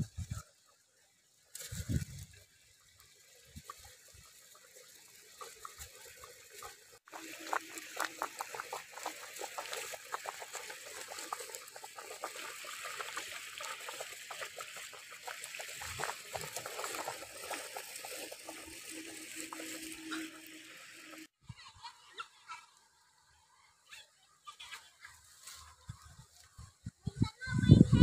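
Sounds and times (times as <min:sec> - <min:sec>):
broth boiling in a pot: 0:01.7 - 0:21.4.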